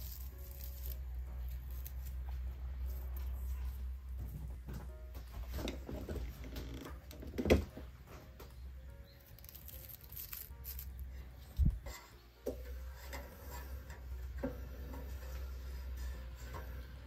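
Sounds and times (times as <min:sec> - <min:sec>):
dried flowers rustling: 0:00.0 - 0:04.2, 0:08.9 - 0:12.2
soft background music: 0:00.0 - 0:17.0.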